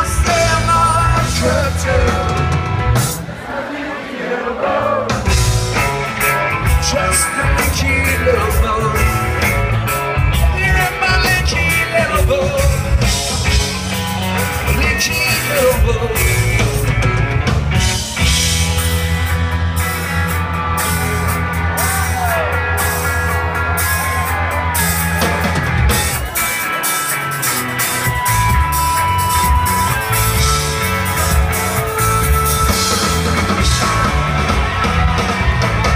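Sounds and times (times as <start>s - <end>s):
bass guitar: 0.0s - 3.3s, 5.0s - 35.9s
electric guitar: 0.0s - 3.3s, 5.1s - 35.9s
drums: 0.0s - 35.9s
person singing: 6.0s - 9.4s, 14.5s - 16.9s.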